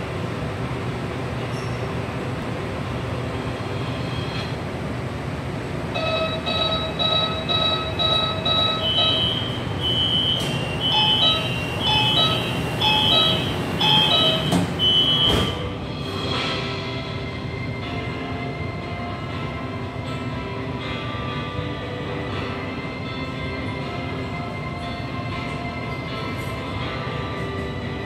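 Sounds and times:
train humming: 0.0s - 28.0s
door warning beeps: 6.0s - 15.6s
two-tone signal: 6.0s - 15.6s
train doors knocking shut: 10.0s - 15.7s.

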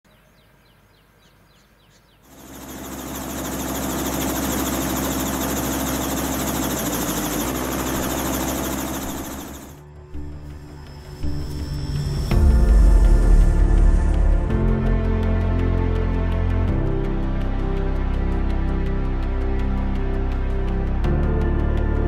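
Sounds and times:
helicopter engine and rotor chop: 2.3s - 16.4s.

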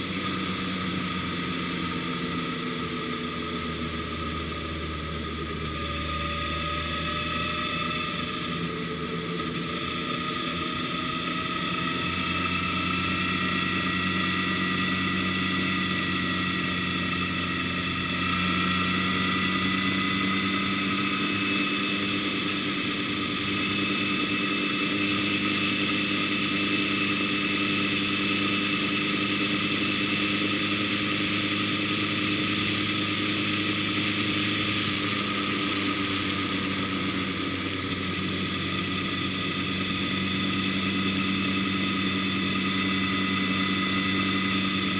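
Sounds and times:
vehicle engine running: 0.0s - 44.9s
loud high hiss: 25.0s - 37.8s.

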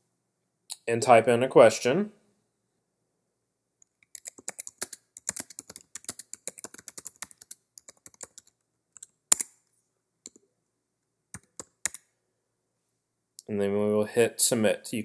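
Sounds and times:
typing on computer keyboard: 4.0s - 9.5s, 11.3s - 12.0s.

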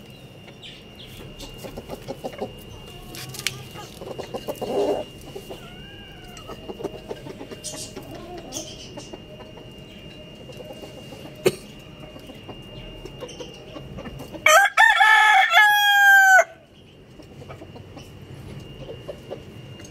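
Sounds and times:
rooster crowing: 4.6s - 6.9s, 14.4s - 16.7s.

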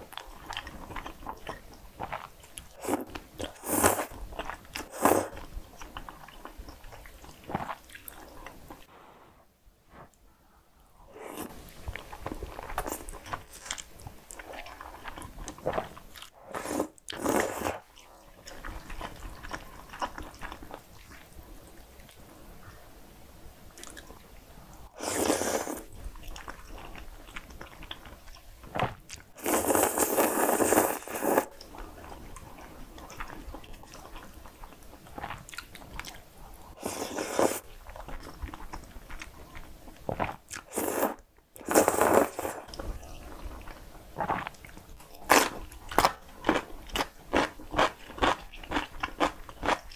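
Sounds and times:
slurping noodles: 2.8s - 4.2s, 11.1s - 11.5s, 16.4s - 17.8s, 25.0s - 25.9s, 29.4s - 31.5s, 36.8s - 37.6s, 40.1s - 42.7s
chewing with wet mouth noises: 25.9s - 40.8s, 41.6s - 49.9s.

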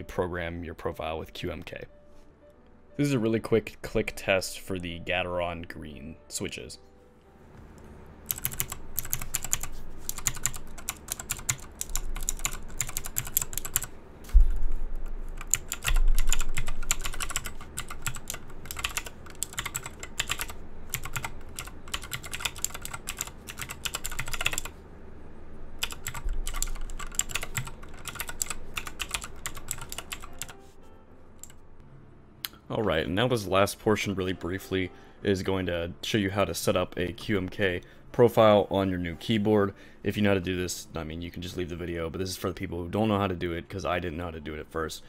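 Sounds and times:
mechanical keyboard key clicks: 8.3s - 13.9s, 25.8s - 30.5s
dull low thuds: 14.4s - 15.0s.

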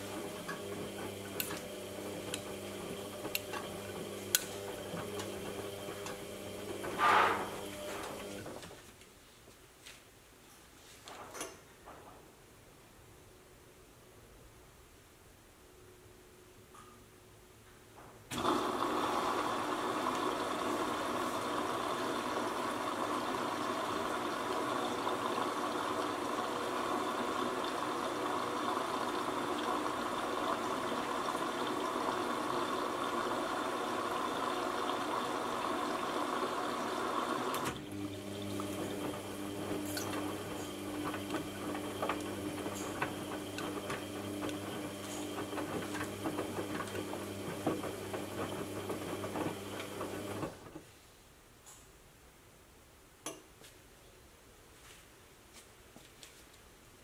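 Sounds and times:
washing machine filling with water: 0.0s - 8.6s, 18.3s - 50.7s
motor hum with light knocks: 37.5s - 50.8s.

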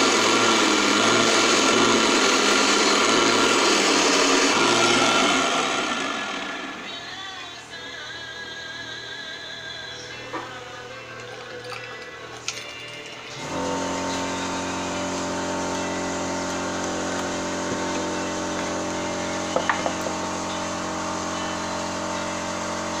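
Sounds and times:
lathe motor humming: 0.0s - 7.1s, 13.4s - 23.0s.

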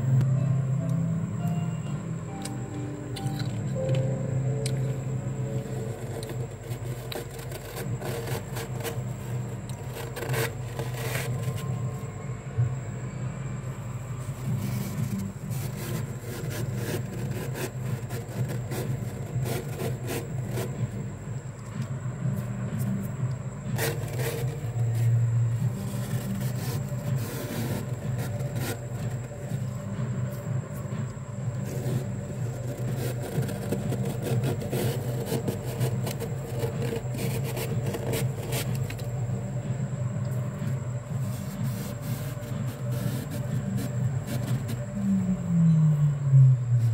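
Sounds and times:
steady low hum: 0.0s - 46.9s
hand scraping frost: 5.6s - 11.9s, 14.2s - 21.0s, 23.8s - 29.7s, 31.6s - 39.1s, 41.2s - 45.1s.

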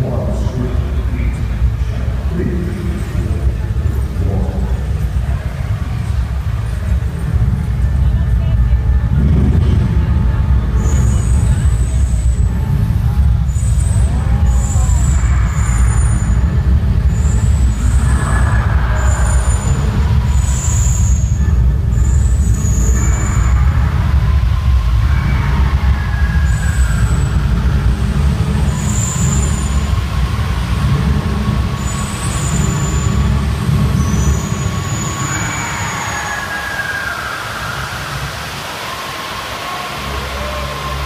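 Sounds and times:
deep continuous rumble: 0.0s - 41.0s
high hissing squeals: 10.8s - 41.0s.

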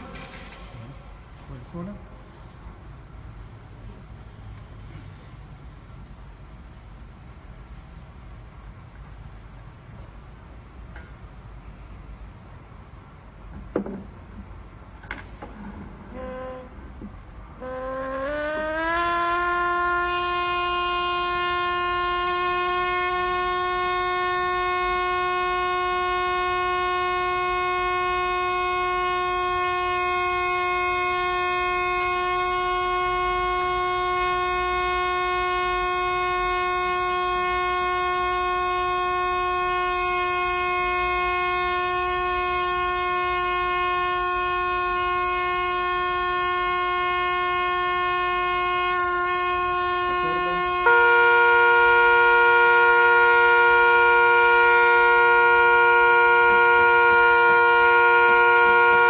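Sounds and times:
pipe organ holding a note: 16.1s - 16.7s, 17.6s - 59.0s.

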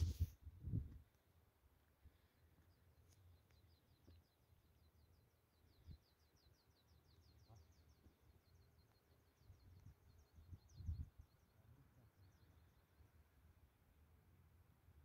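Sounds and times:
faint low wind rumble: 0.0s - 2.5s, 9.3s - 15.0s.

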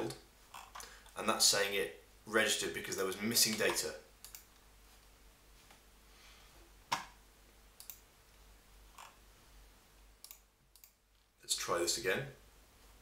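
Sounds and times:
computer mouse clicks: 3.5s - 4.6s, 7.8s - 8.0s, 10.2s - 11.0s.

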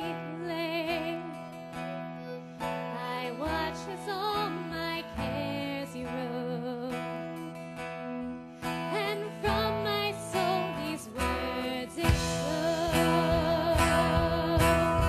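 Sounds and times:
person singing with wavering voice: 0.0s - 15.0s
instrumental accompaniment: 6.0s - 15.0s.

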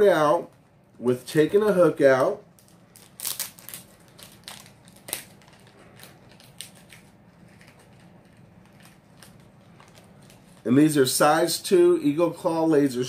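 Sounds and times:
plastic package clicks and crinkles: 2.5s - 10.7s.

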